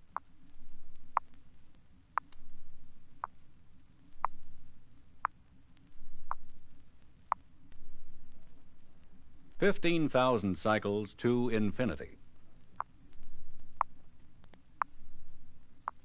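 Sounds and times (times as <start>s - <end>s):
high sine tone gliding upward: 0.0s - 7.4s
record clicks: 0.0s - 7.4s, 12.8s - 14.6s
faint low rumble: 0.0s - 16.0s.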